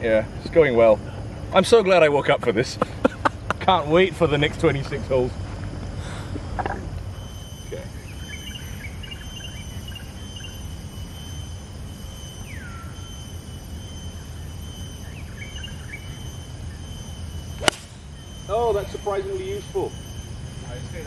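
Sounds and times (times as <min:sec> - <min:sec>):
insects droning: 0:00.0 - 0:21.0
bird chirps: 0:07.1 - 0:21.0
golf club striking ball: 0:17.6 - 0:18.3.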